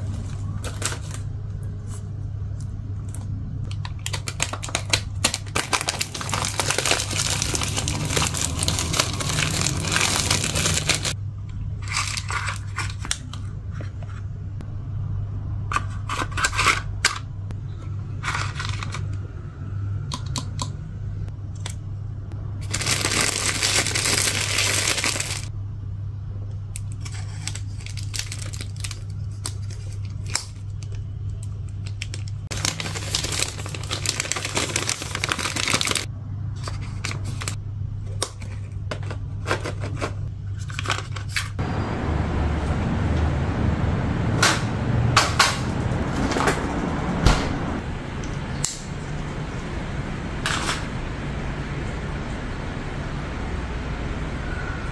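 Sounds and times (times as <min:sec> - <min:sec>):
steady low hum: 0:00.0 - 0:54.9
plastic packaging crinkling: 0:04.0 - 0:11.2, 0:22.6 - 0:25.5, 0:27.0 - 0:31.0, 0:31.8 - 0:36.1.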